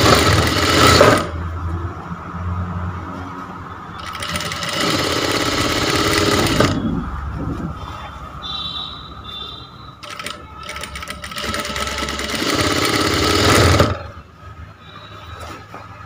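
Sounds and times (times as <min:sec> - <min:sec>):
sewing machine stitching: 0:00.0 - 0:01.3, 0:04.0 - 0:06.8, 0:10.0 - 0:14.1.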